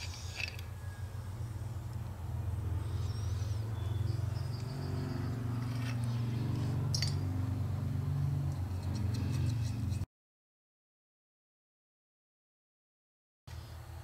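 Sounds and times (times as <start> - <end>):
light clicks of metal parts: 5.6 - 7.2, 8.5 - 10.0.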